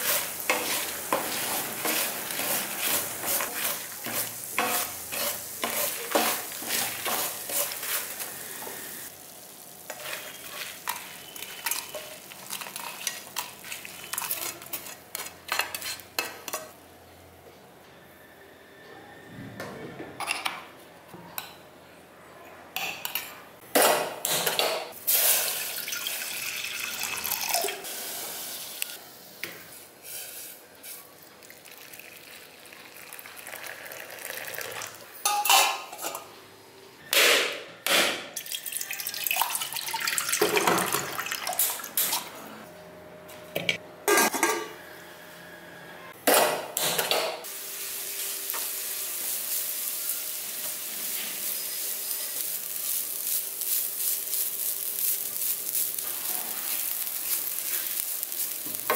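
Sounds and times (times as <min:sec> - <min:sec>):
food sizzling in oil: 0:00.0 - 0:16.5, 0:47.4 - 0:58.9
steel utensils clinking: 0:09.9 - 0:16.7
water poured into steel bowl: 0:31.4 - 0:35.0, 0:38.4 - 0:41.7.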